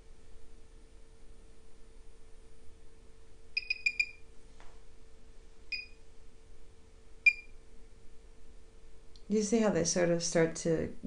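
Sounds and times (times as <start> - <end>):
short high beeps: 3.6 - 4.2, 7.3 - 7.5.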